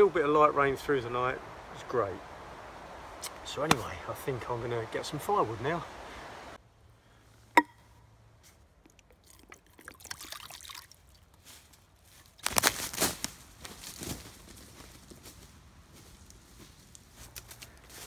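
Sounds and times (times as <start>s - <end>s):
footsteps crunching dry leaves: 11.3s - 18.0s.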